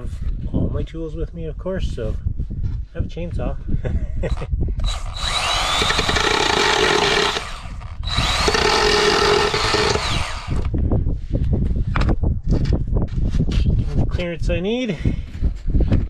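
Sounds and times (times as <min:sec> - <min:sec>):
chainsaw cutting plywood: 0:04.8 - 0:10.7.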